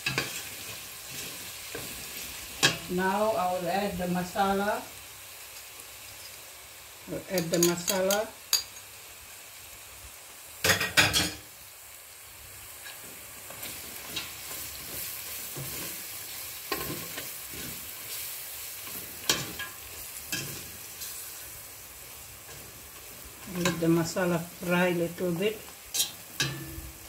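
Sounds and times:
spoon stirring and scraping pot: 0:00.0 - 0:02.0, 0:12.9 - 0:21.5, 0:25.9 - 0:26.8
onions sizzling in hot oil: 0:00.0 - 0:27.0.

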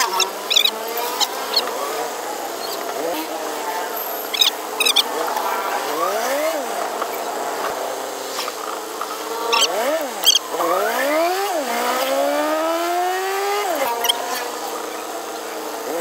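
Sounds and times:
short high squeaks: 0:00.0 - 0:01.7, 0:02.6 - 0:02.8, 0:04.2 - 0:05.0, 0:09.4 - 0:10.4
engine accelerating: 0:00.0 - 0:16.0.

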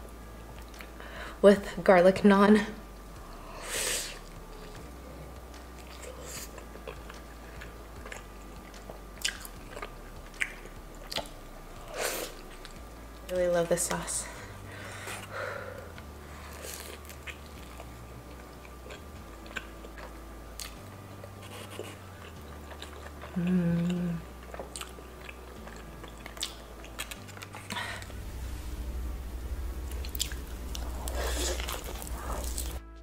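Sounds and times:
crunchy chewing of food: 0:04.2 - 0:12.8, 0:16.0 - 0:28.2, 0:30.1 - 0:32.8
short hum: 0:27.7 - 0:33.0.

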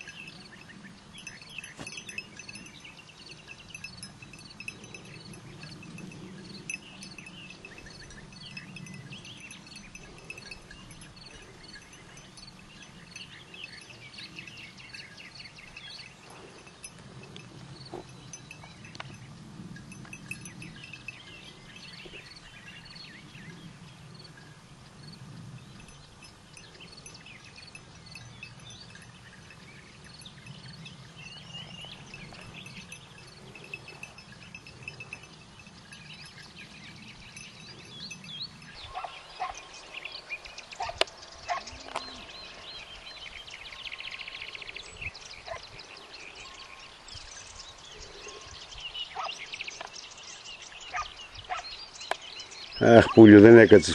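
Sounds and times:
birds chirping and singing: 0:00.0 - 0:53.9.

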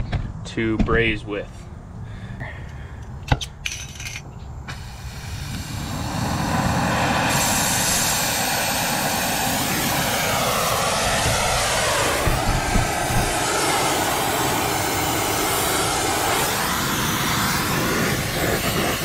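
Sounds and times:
torch flame rushing: 0:04.6 - 0:19.0.

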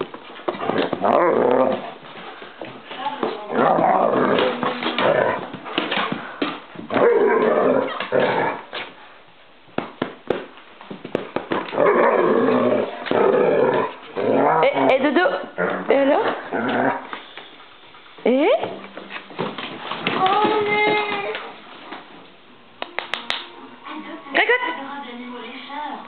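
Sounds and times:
dogs scuffling: 0:00.0 - 0:22.4
dogs growling: 0:00.5 - 0:02.5, 0:03.4 - 0:08.9, 0:11.6 - 0:17.2.

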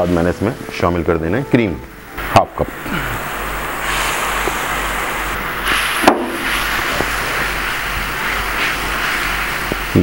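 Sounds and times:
sauce bubbling and sizzling in pan: 0:02.3 - 0:10.0.

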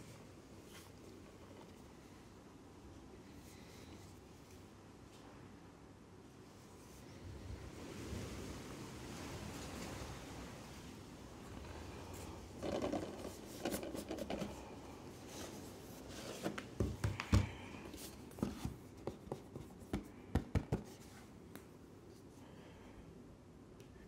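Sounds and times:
plastic cases knocking and clicking: 0:12.6 - 0:14.6
cardboard box rustling and scraping: 0:15.2 - 0:16.9.

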